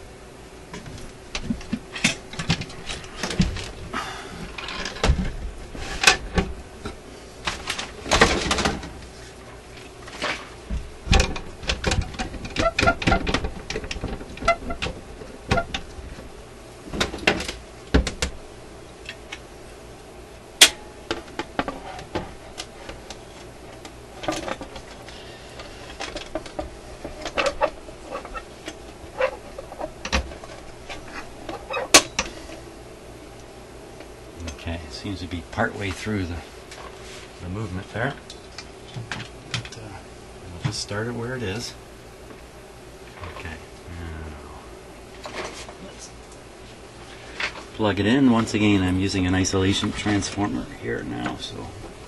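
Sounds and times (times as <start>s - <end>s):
clicks and clatter of handling wood: 9.8s - 16.3s, 20.7s - 32.4s.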